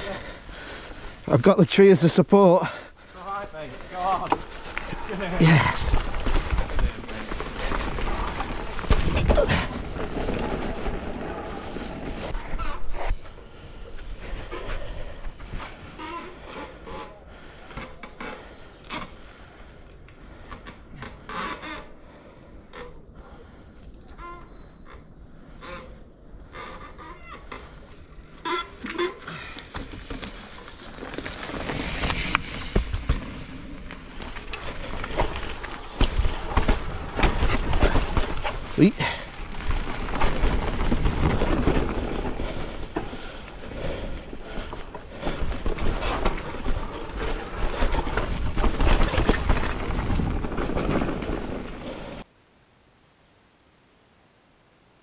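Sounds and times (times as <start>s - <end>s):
bike tyres over stones: 0.0s - 19.3s, 26.5s - 52.3s
bike knocking and rattling: 3.2s - 12.8s, 26.4s - 52.2s.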